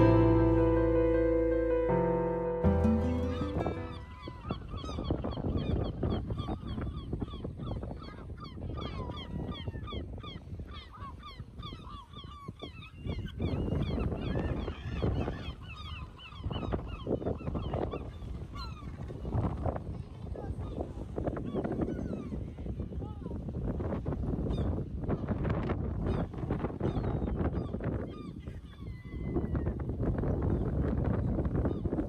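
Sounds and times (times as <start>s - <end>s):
gulls calling: 0.0s - 19.0s
wind on microphone: 2.8s - 32.0s.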